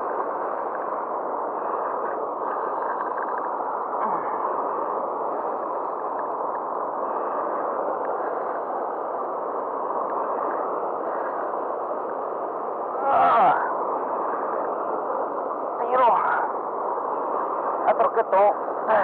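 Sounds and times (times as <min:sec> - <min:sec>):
faint clicks: 0:02.8 - 0:03.6, 0:06.1 - 0:06.8.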